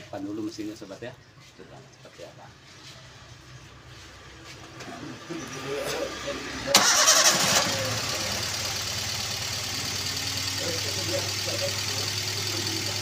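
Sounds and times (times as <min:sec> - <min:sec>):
car engine idling with misfire: 0:05.8 - 0:13.0.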